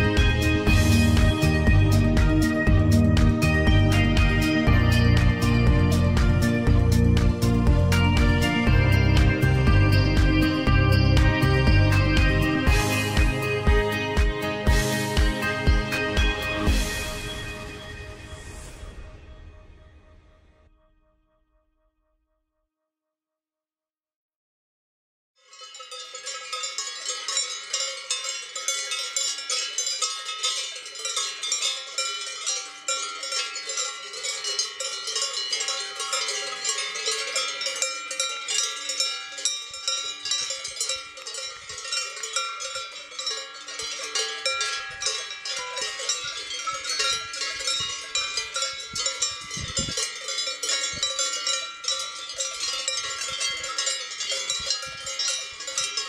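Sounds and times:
cowbells clanging: 0.0 - 17.8, 25.4 - 56.0.

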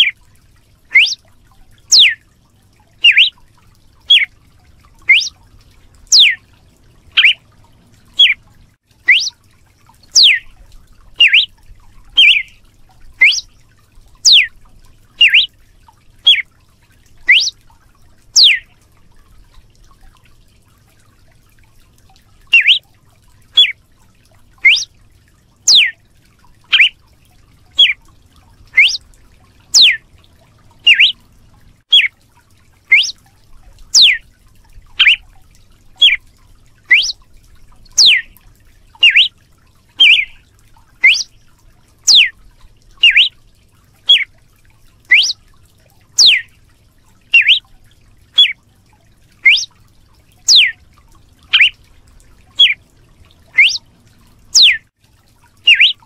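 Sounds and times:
bird whip-like call notes: 0.9 - 1.2, 1.9 - 2.2, 3.0 - 3.3, 4.1 - 4.3, 5.1 - 5.3, 6.1 - 6.4, 7.2 - 7.4, 9.1 - 9.4, 10.2 - 10.4, 11.2 - 11.5, 12.2 - 12.5, 13.2 - 13.5, 14.3 - 14.5, 15.2 - 15.5, 17.3 - 17.6, 18.4 - 18.6, 22.5 - 22.8, 24.6 - 24.9, 25.7 - 26.0, 26.7 - 26.9, 28.8 - 29.0, 29.8 - 30.0, 30.9 - 31.2, 31.9 - 32.1, 32.9 - 33.2, 34.0 - 34.2, 35.0 - 35.2, 36.0 - 36.2, 36.9 - 37.2, 38.0 - 38.3, 39.0 - 39.3, 40.0 - 40.4, 41.0 - 41.3, 42.1 - 42.3, 43.0 - 43.3, 44.1 - 44.3, 45.1 - 45.4, 46.2 - 46.5, 47.4 - 47.6, 48.4 - 48.6, 49.4 - 49.7, 50.5 - 50.7, 51.5 - 51.8, 53.6 - 53.8, 54.6 - 54.8, 55.7 - 56.0.

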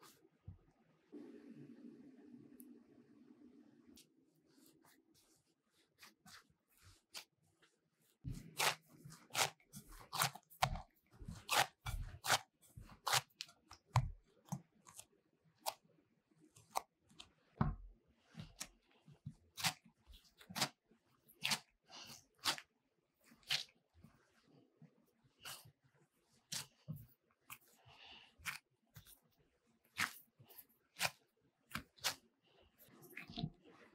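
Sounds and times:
dough squishing while kneaded: 4.0 - 33.9
dough pressed with soft thump: 5.9 - 15.8, 16.7 - 21.6.

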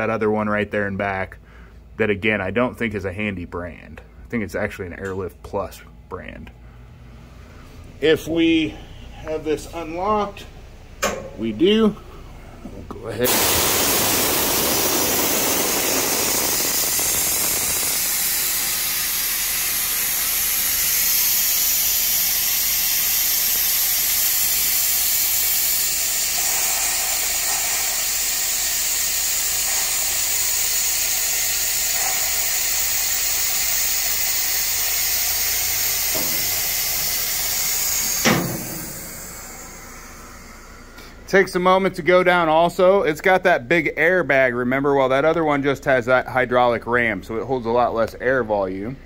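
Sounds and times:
compressed air hissing: 13.2 - 41.3.

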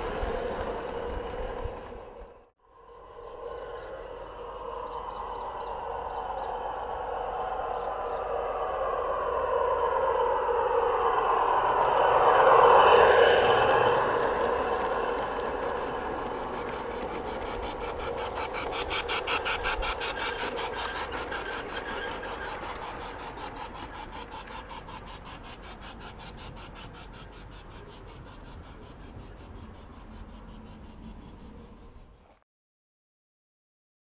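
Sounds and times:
wheels clicking over rail joints: 0.0 - 2.4, 11.2 - 31.2
model train rolling rumble: 0.0 - 2.5, 10.9 - 31.3.

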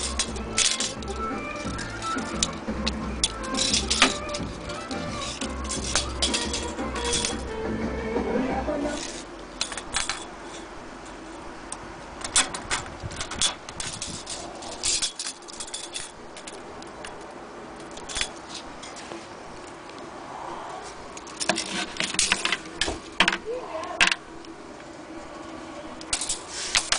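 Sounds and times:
clicks and knocks of handling: 0.0 - 7.5, 21.1 - 23.4.

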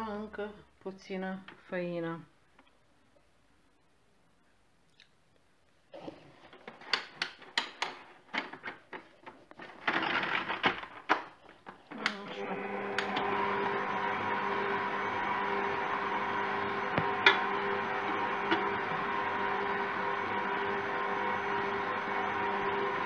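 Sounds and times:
stand mixer motor running: 12.3 - 23.0.

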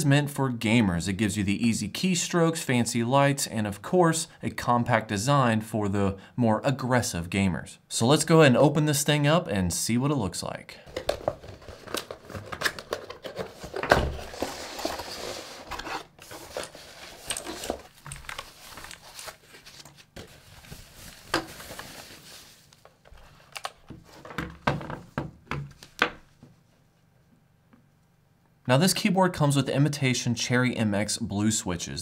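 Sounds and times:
cardboard box scraping and knocking: 11.1 - 17.8
foam wrapping crinkling: 11.1 - 23.0.

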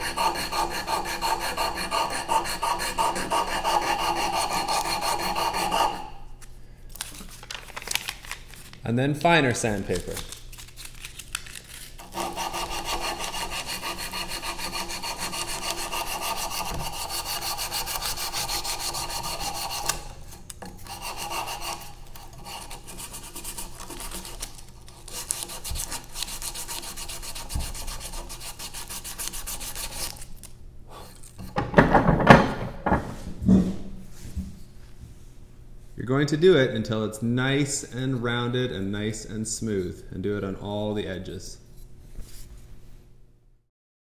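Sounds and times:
sandpaper rubbing on wood: 0.0 - 6.1, 12.0 - 20.0, 20.9 - 30.2.

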